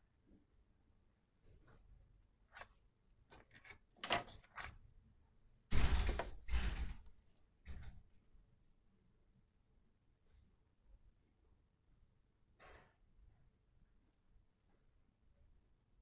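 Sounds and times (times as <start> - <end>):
rustling and scraping handling noises: 2.5 - 4.8.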